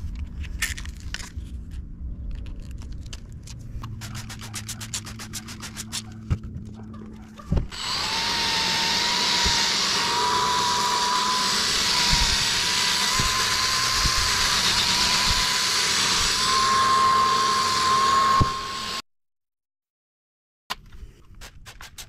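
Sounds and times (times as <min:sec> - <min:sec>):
drill motor whine: 0:07.6 - 0:19.0.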